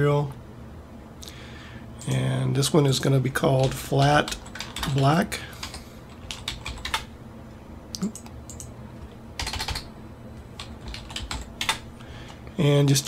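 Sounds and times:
keyboard typing: 0:03.6 - 0:07.1, 0:08.0 - 0:08.7, 0:09.4 - 0:11.8.

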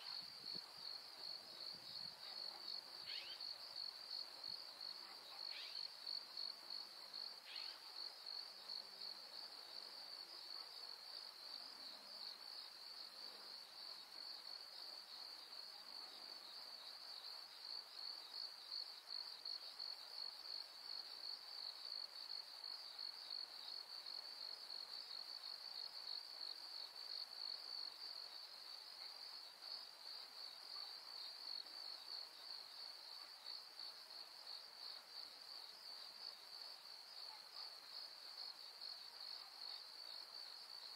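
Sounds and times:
insects trilling: 0:02.7 - 0:03.9.

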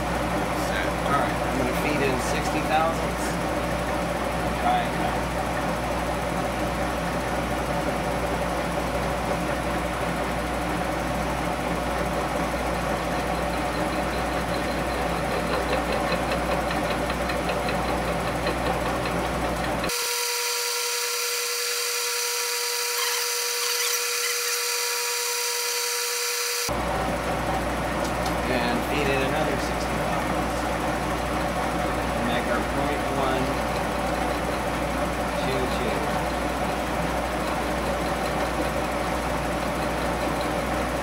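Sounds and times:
high-pitched machine whine: 0:00.0 - 0:28.0
milling machine hum: 0:00.0 - 0:41.0.

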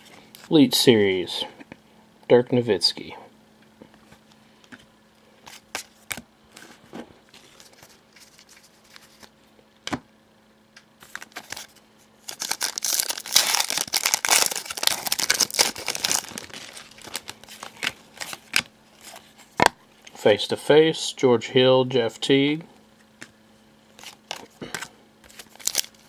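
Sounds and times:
foil wrapper crinkling and tearing: 0:11.0 - 0:19.3, 0:23.9 - 0:26.0.

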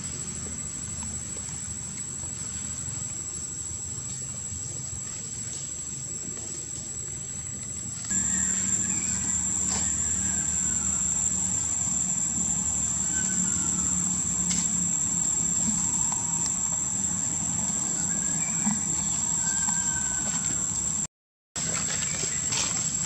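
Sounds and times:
low hum: 0:08.1 - 0:21.0
high-pitched insect drone: 0:08.1 - 0:21.1.

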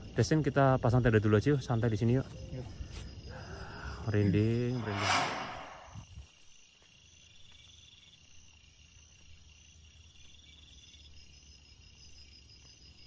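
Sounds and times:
night insects chirring: 0:00.0 - 0:13.0.

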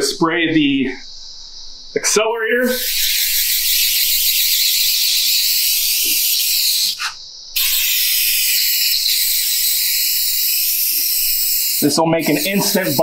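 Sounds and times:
aerosol can spraying: 0:02.8 - 0:13.0.

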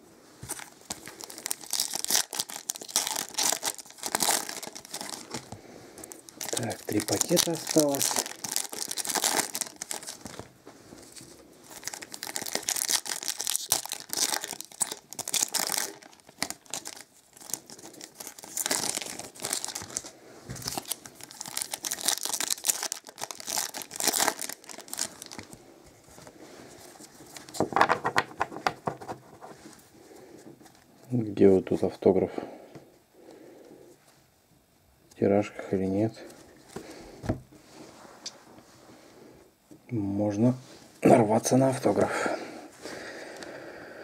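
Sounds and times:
foil wrappers torn and crinkled: 0:00.5 - 0:05.5, 0:06.1 - 0:10.5, 0:11.6 - 0:25.5.

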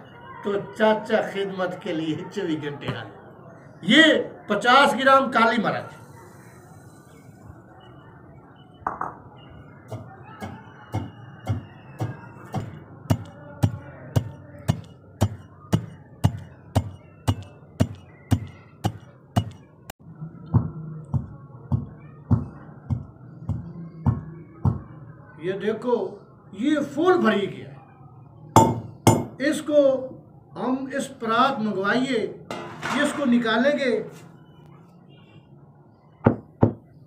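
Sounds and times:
pestle pounding in metal mortar: 0:09.9 - 0:19.6, 0:28.6 - 0:29.4.

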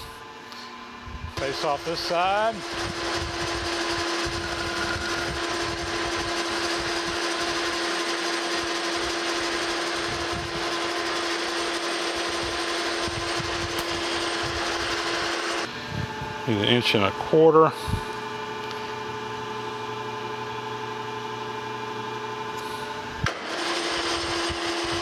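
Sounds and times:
metal lathe drive tone: 0:01.4 - 0:15.7, 0:23.3 - 0:25.0.

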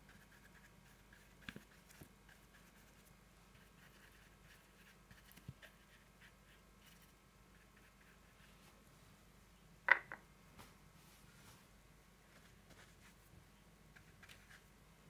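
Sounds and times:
brush scratching on paper: 0:00.1 - 0:08.7.

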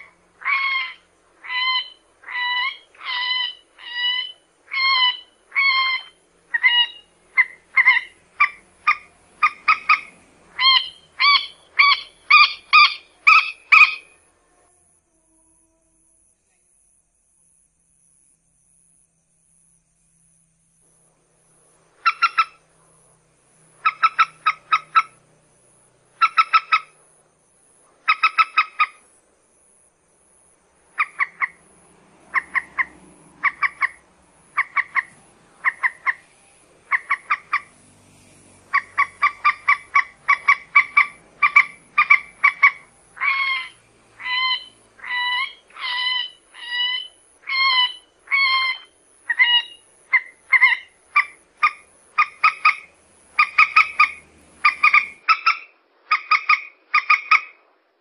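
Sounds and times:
moorhen calling: 0:00.0 - 0:14.2, 0:22.0 - 0:22.6, 0:23.7 - 0:25.3, 0:26.1 - 0:27.0, 0:28.0 - 0:29.0, 0:30.9 - 0:37.8, 0:38.6 - 0:57.6.

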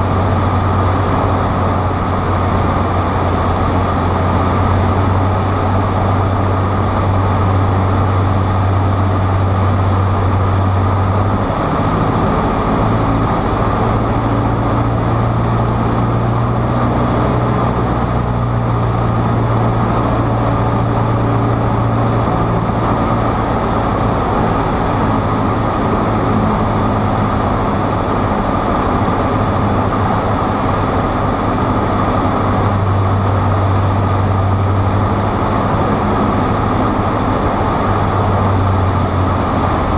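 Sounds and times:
small plane engine droning: 0:00.0 - 0:39.9.

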